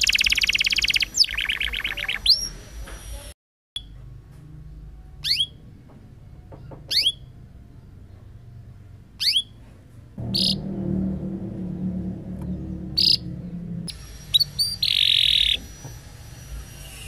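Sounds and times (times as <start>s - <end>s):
low steady hum: 10.2s - 15.0s
canary call notes: 10.3s - 10.6s, 14.2s - 15.6s.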